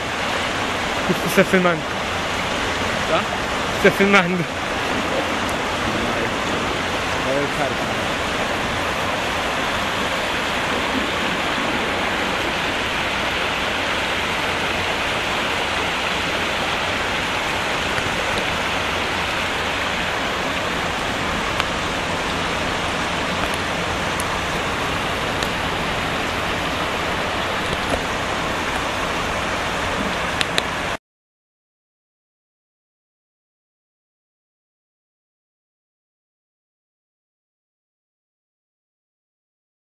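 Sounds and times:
water rushing down a road: 0.0 - 31.0.

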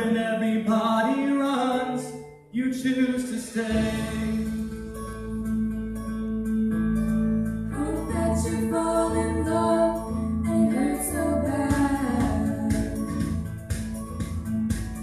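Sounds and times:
instrumental accompaniment: 1.3 - 15.0
choir singing: 3.5 - 4.6.

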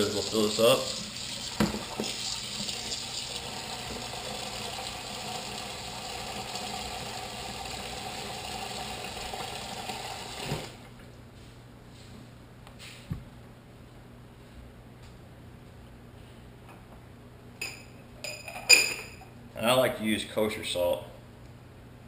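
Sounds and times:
faucet water rushing into bowl: 0.0 - 10.7.

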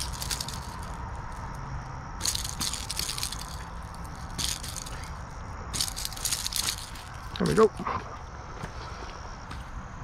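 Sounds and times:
hooks rattling in grass: 0.0 - 7.8.

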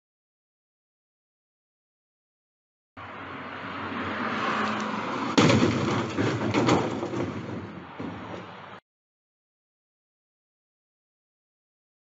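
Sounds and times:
clattering: 4.6 - 8.5
loud crash: 4.8 - 8.4.

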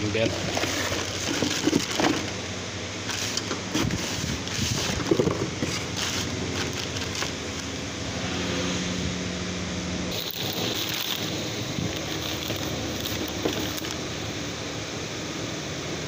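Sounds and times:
low hum: 0.0 - 16.0
plastic bag crinkling: 0.4 - 2.3, 3.0 - 7.8, 10.1 - 14.0.

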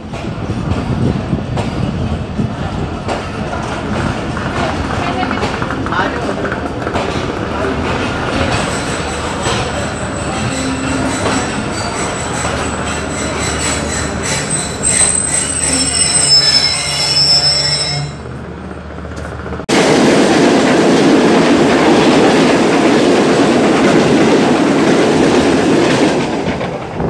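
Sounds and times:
train coaches rushing past: 0.0 - 27.0
train rumble: 0.0 - 27.0
train wheels squealing: 8.6 - 18.3.

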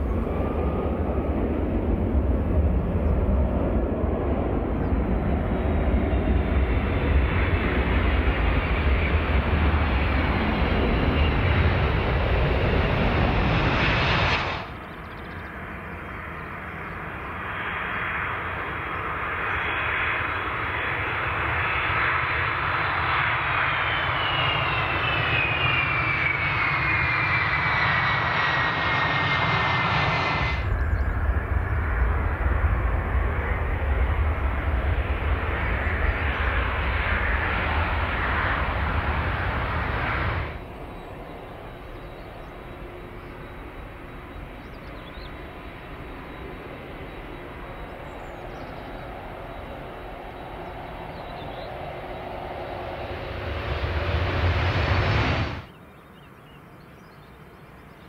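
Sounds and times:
airliner rolling out rumble: 0.0 - 58.0
jet engine whine: 0.0 - 58.0.

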